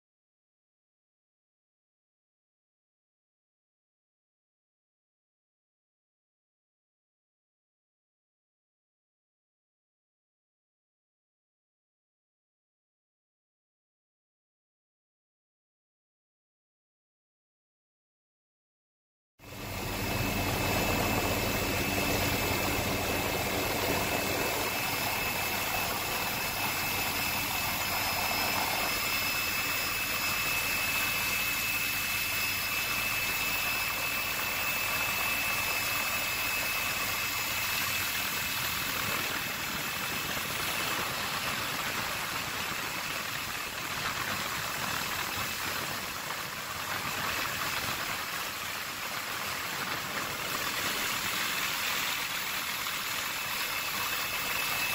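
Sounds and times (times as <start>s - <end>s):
helicopter engine and rotor: 19.4s - 54.9s
high turbine whine: 19.4s - 54.9s.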